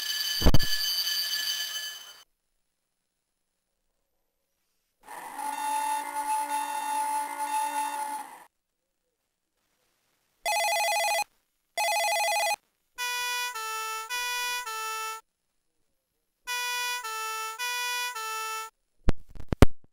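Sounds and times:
two-tone hi-lo siren: 5.2 - 8.4, 13.0 - 15.2, 16.5 - 18.7.

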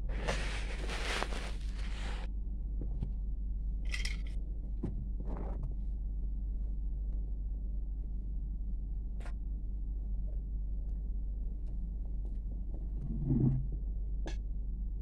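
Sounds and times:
steady low hum: 0.0 - 15.0
rustles: 0.2 - 2.2.

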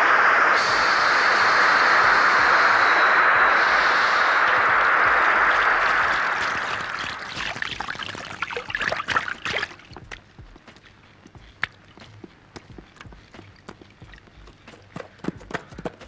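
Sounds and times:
hose water jet spraying: 0.6 - 16.0
water splashes and drips: 6.0 - 15.6.

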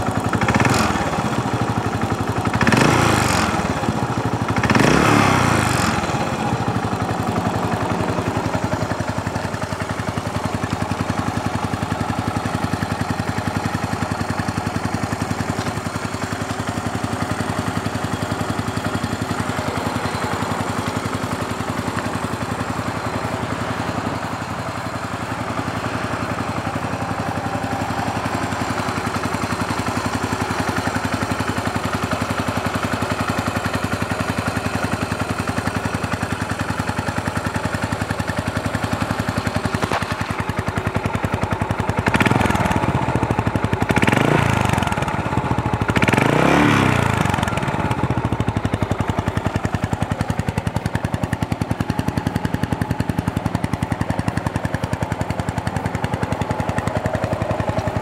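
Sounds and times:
engine revving: 0.0 - 9.6, 42.0 - 50.0
motorcycle engine idling: 0.0 - 58.0.

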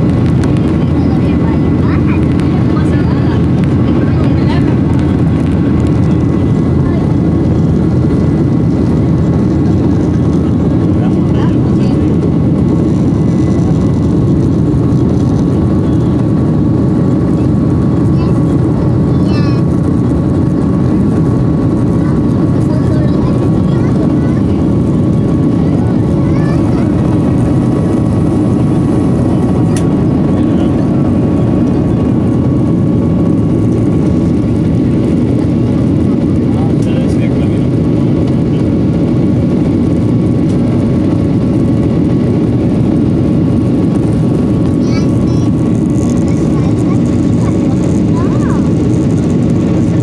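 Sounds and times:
jet engine cabin rumble: 0.0 - 50.0.

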